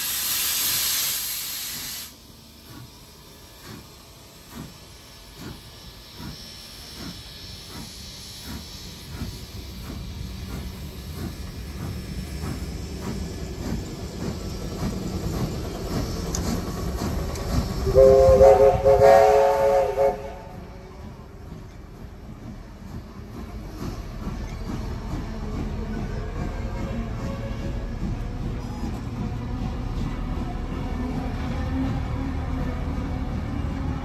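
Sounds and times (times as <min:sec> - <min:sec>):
train wheels clicking over rail joints: 0:00.0 - 0:30.7
train rumble: 0:00.0 - 0:34.0
multi-note train whistle: 0:17.8 - 0:21.0.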